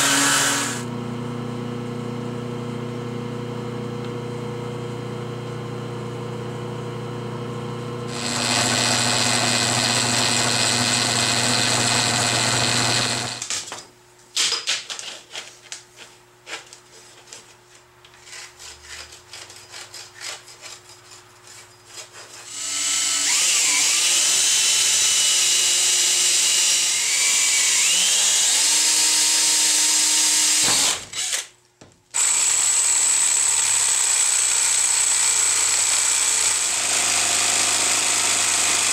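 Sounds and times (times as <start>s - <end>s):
jigsaw cutting plastic pipe: 0.0s - 0.9s, 8.1s - 13.7s, 14.4s - 31.5s, 32.1s - 38.9s.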